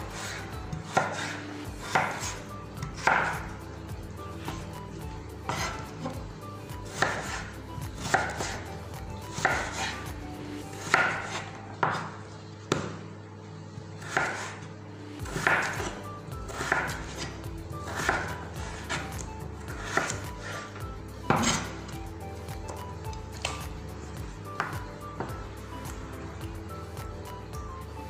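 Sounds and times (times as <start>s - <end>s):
knife cutting on wooden board: 0.0s - 3.5s, 5.4s - 6.2s, 6.9s - 8.6s, 9.3s - 10.0s, 14.0s - 14.7s, 15.3s - 21.8s.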